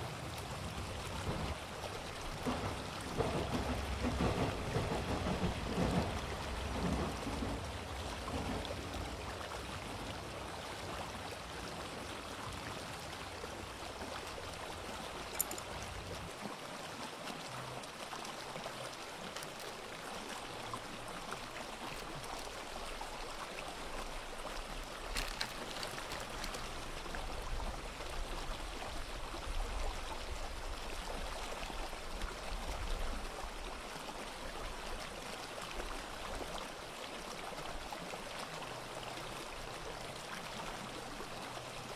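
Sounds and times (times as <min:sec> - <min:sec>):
sea waves washing on shore: 0:00.0 - 0:41.9.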